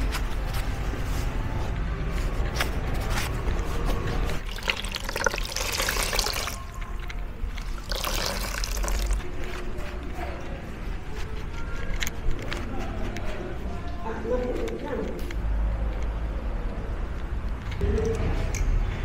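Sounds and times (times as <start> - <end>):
water splashing in plastic bowl: 4.4 - 6.8, 7.6 - 9.2.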